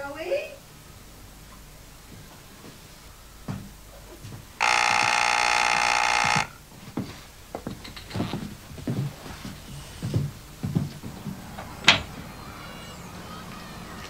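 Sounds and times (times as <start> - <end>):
doorbell buzzer: 4.6 - 6.6
soft thuds: 6.8 - 12.2.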